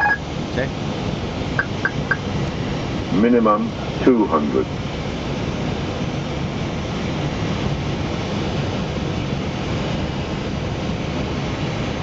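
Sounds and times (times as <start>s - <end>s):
aircraft engine and airflow noise: 0.0s - 12.0s.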